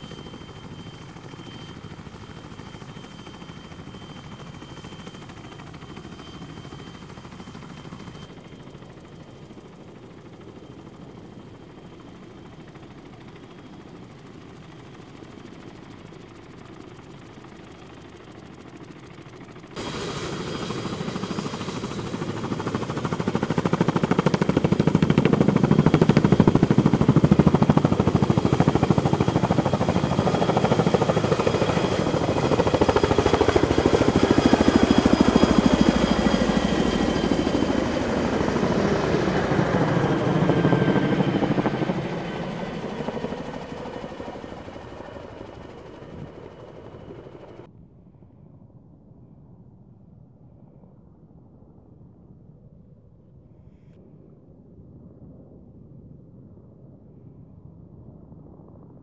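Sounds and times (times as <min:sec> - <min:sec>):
helicopter rotor beat: 0:00.0 - 0:47.7
high turbine whine: 0:00.0 - 0:47.7.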